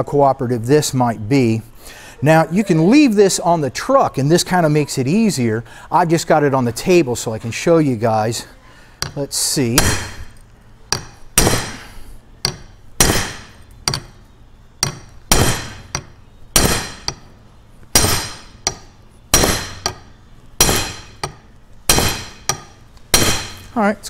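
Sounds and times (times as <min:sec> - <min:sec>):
hammer striking metal punch: 0:09.0 - 0:10.3, 0:10.9 - 0:14.2, 0:14.8 - 0:17.3, 0:17.9 - 0:23.7.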